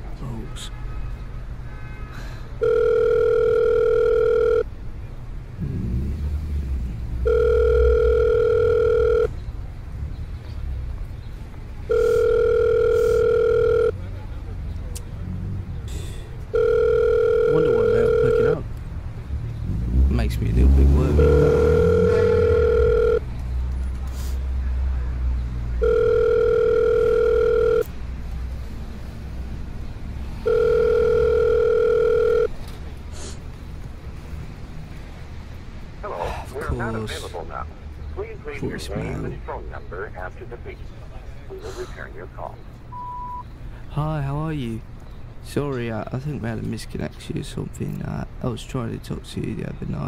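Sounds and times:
telephone ringback tone: 2.6s - 4.7s, 7.2s - 9.3s, 11.9s - 14.0s, 16.5s - 18.6s, 21.1s - 23.3s, 25.8s - 27.9s, 30.4s - 32.5s, 42.9s - 43.4s.

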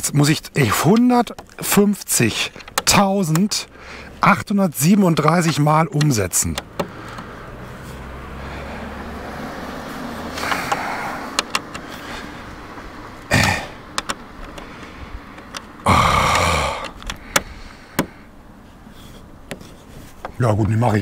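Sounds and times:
handling noise: 0.0s - 4.2s, 5.1s - 8.0s, 9.9s - 21.0s
allen key clicking in screws: 2.4s - 3.7s, 5.2s - 7.2s, 10.4s - 12.0s, 13.8s - 18.1s
short rustling: 17.5s - 21.0s.

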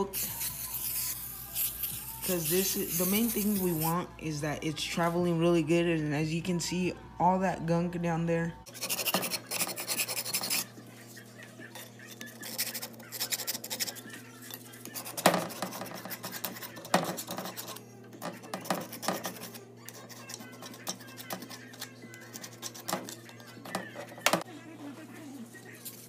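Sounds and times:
scratchy rubbing on bench vise: 8.7s - 11.2s, 11.8s - 24.4s.

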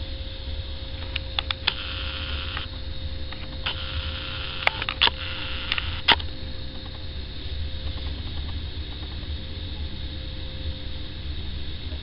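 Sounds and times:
low engine rumble: 0.0s - 12.0s
sharp clicks and ticks: 1.0s - 2.7s, 3.4s - 7.1s
hiss: 1.7s - 2.7s, 3.6s - 6.2s.

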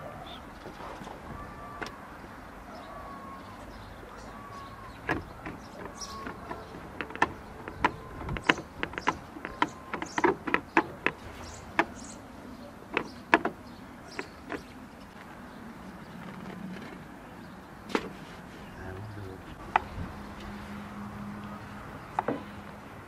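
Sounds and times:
sharp clicks and taps: 5.1s - 11.2s.

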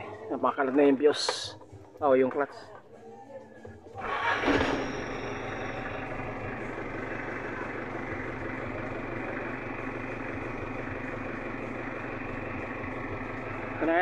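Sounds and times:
engine idling: 3.6s - 14.0s.

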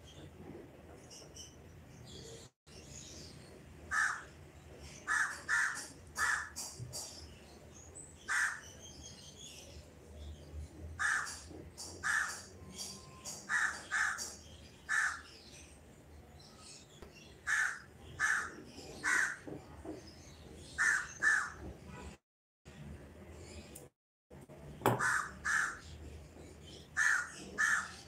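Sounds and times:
crows cawing: 3.9s - 4.3s, 5.0s - 6.6s, 8.3s - 8.6s, 11.0s - 11.4s, 12.0s - 12.5s, 13.5s - 14.3s, 14.9s - 15.3s, 17.5s - 19.5s, 20.8s - 21.6s, 25.0s - 25.8s, 27.0s - 28.0s.

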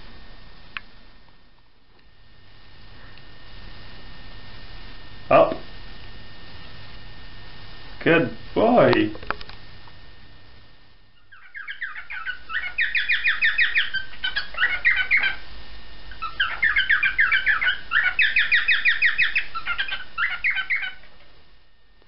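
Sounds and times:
cockatiel chirping song: 11.2s - 15.4s, 16.1s - 21.2s.

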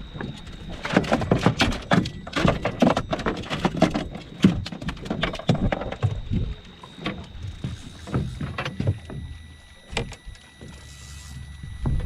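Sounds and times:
knocks and thumps: 0.2s - 9.3s.

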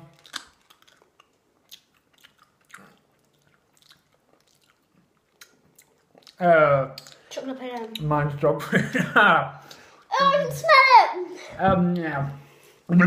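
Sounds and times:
chewing mouth clicks and smacks: 0.1s - 6.4s, 7.0s - 8.1s.

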